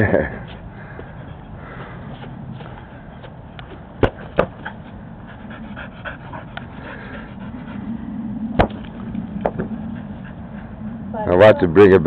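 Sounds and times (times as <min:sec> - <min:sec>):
sharp thumps: 0:03.6 - 0:04.8, 0:08.5 - 0:09.9
dog panting: 0:04.2 - 0:08.2, 0:09.5 - 0:11.0.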